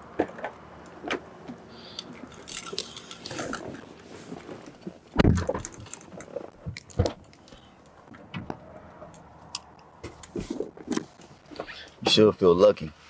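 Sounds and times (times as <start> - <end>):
people settling into car seats: 10.0 - 11.8.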